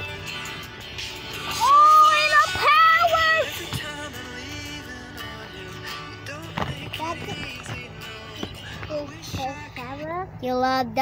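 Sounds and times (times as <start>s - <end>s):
girl singing loudly: 1.6s - 3.6s.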